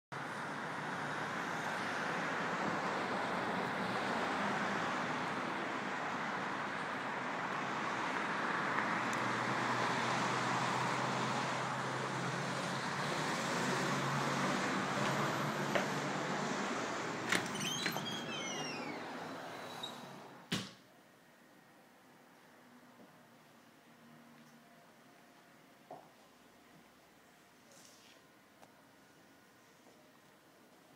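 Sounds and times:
road traffic noise: 0:00.2 - 0:20.6.

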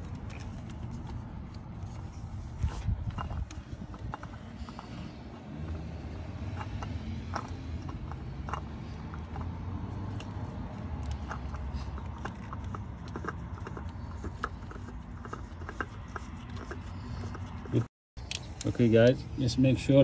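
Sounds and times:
oil filter clicks and scrapes: 0:00.0 - 0:19.4.

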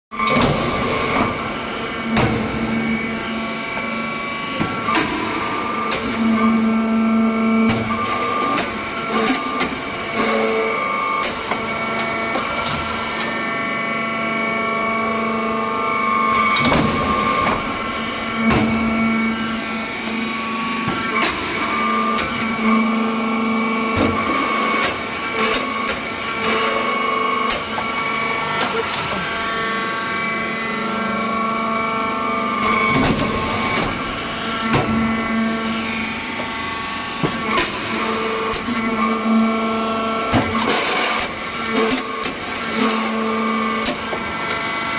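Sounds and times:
hydraulic machine whine: 0:00.1 - 0:44.9
higher machine whine: 0:00.2 - 0:44.9.

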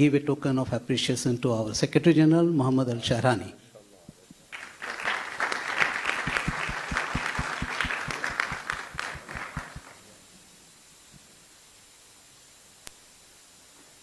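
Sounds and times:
audience applauding: 0:04.5 - 0:10.0
rhythmic claps: 0:04.5 - 0:10.0.

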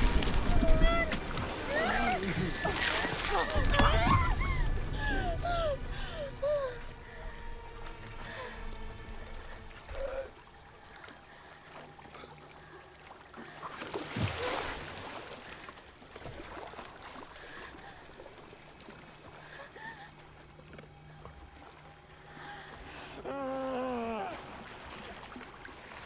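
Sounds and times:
wash of water: 0:00.0 - 0:05.5, 0:13.4 - 0:19.0
low steady drone: 0:00.0 - 0:13.7, 0:17.5 - 0:26.0
sea water lapping: 0:00.0 - 0:26.0.

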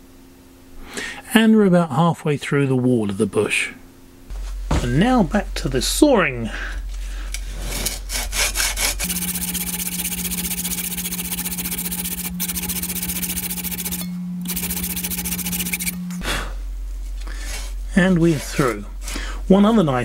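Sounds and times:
steady hum: 0:03.7 - 0:20.0
hacksaw rasping through metal: 0:07.6 - 0:16.0.

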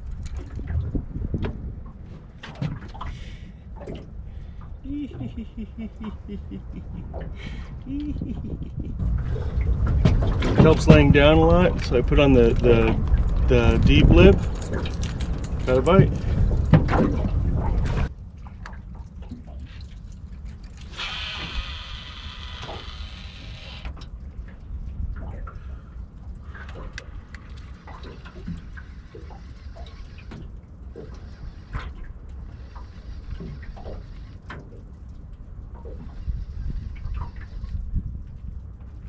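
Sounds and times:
low wind rumble: 0:00.0 - 0:39.0
water lapping against metal hull: 0:00.0 - 0:39.0
fishing reel spool whirring: 0:20.8 - 0:24.0.

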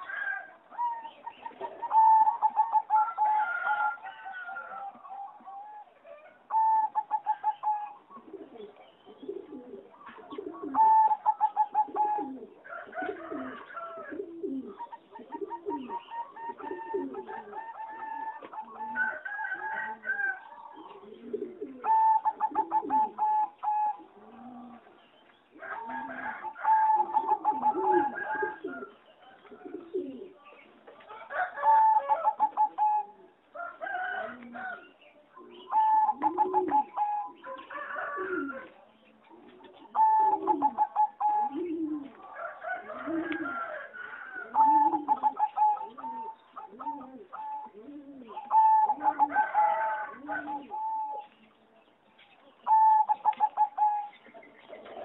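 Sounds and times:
dove cooing staccato phrases: 0:00.0 - 0:04.0, 0:04.7 - 0:30.4, 0:31.2 - 0:34.8, 0:35.4 - 0:51.4, 0:52.6 - 0:55.0
low dove coos: 0:00.0 - 0:51.6, 0:52.6 - 0:55.0.

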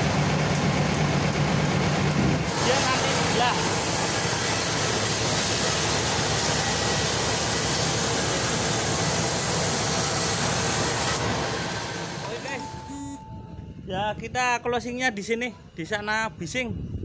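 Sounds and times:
band saw cutting log: 0:02.5 - 0:13.1.

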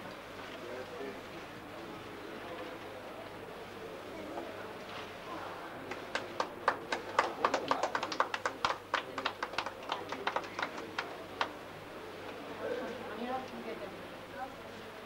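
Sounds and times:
people clapping: 0:05.7 - 0:11.9.

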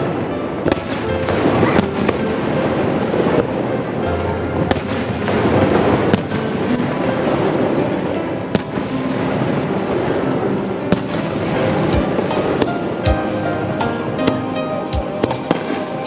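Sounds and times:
crackling rumble of fireworks: 0:00.0 - 0:16.0.

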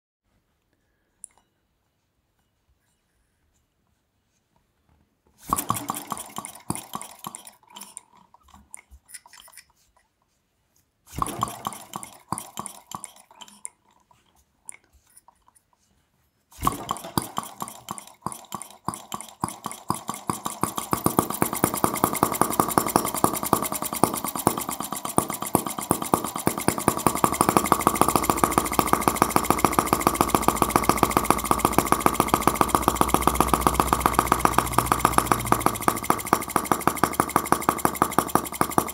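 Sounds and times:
model engine firing: 0:05.4 - 0:07.7, 0:11.1 - 0:13.2, 0:16.6 - 0:38.9
flywheel spinning by hand: 0:05.4 - 0:09.8, 0:11.1 - 0:14.2, 0:16.6 - 0:38.9.

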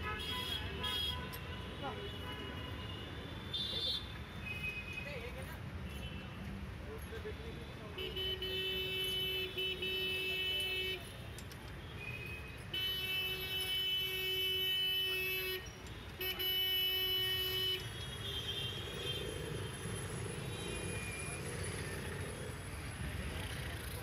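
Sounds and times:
vehicle horn honking: 0:00.0 - 0:01.4
street traffic rumble: 0:00.0 - 0:24.0.

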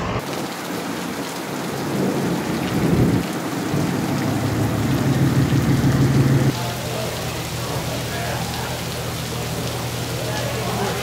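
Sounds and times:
heavy rain on pavement: 0:00.0 - 0:11.0
truck engine running: 0:02.8 - 0:06.5.

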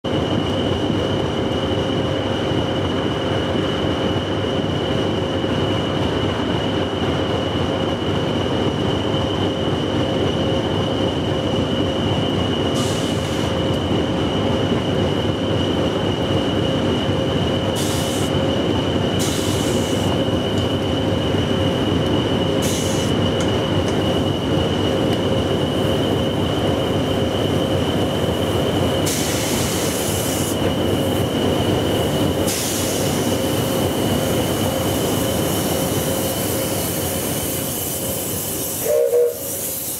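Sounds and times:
locomotive idling rumble: 0:00.1 - 0:39.9.

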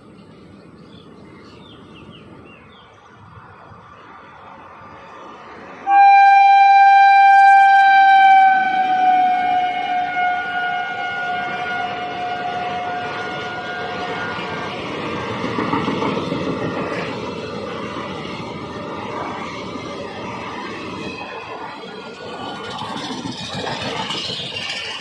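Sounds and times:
train coaches rumbling: 0:00.0 - 0:25.0
locomotive horn blast: 0:05.8 - 0:14.7.

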